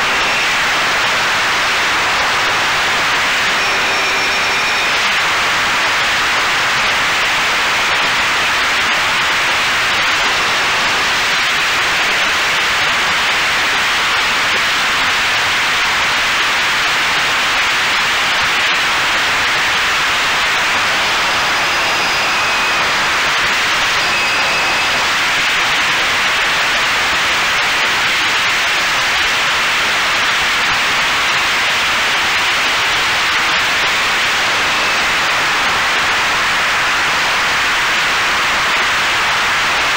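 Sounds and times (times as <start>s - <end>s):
faint high whine: 0.0s - 16.0s, 16.7s - 39.9s.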